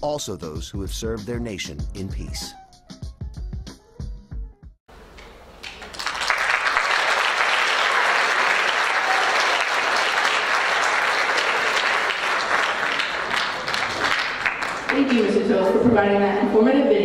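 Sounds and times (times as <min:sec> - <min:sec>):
crowd clapping: 0:05.2 - 0:15.5.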